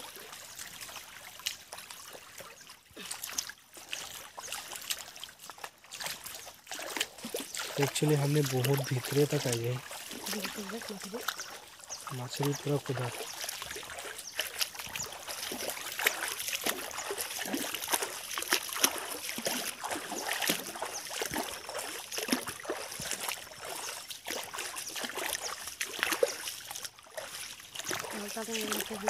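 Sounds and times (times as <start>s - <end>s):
footsteps through undergrowth: 12.3s - 25.6s.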